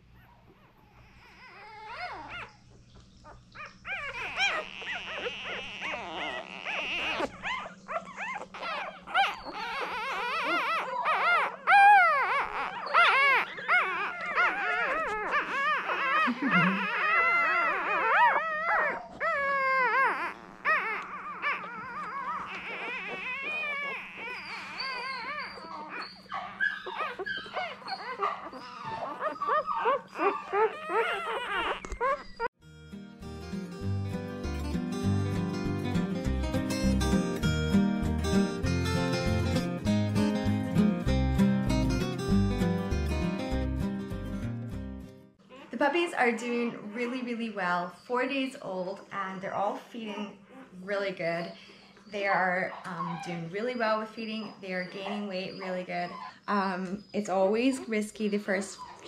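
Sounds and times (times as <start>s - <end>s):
puppies squealing and whimpering: 0.0s - 32.6s, 45.3s - 59.0s.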